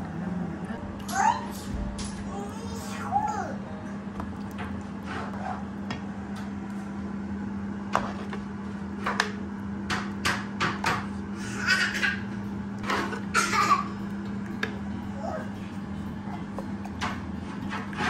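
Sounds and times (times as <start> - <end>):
steady low hum: 0.0 - 18.0
ladle scraping cooking pots: 16.4 - 18.0.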